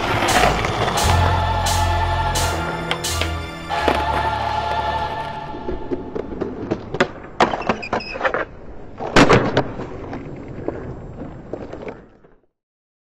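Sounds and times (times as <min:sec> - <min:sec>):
skateboard wheels rolling on paving: 0:00.0 - 0:01.0, 0:05.5 - 0:12.6.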